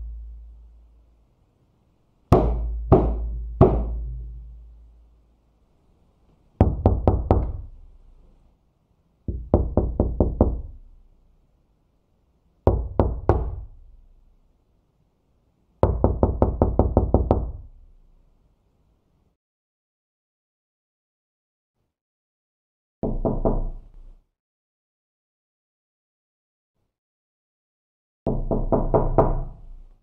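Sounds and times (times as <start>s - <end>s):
knocking on a door: 2.3s - 4.4s, 6.6s - 7.7s, 9.3s - 10.8s, 12.7s - 13.7s, 15.8s - 17.7s, 23.0s - 23.7s, 28.3s - 29.5s.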